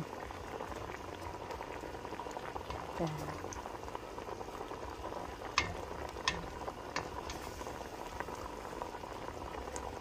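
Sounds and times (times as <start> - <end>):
sauce sizzling and bubbling in pot: 0.0 - 10.0
wooden spatula stirring: 5.5 - 8.7.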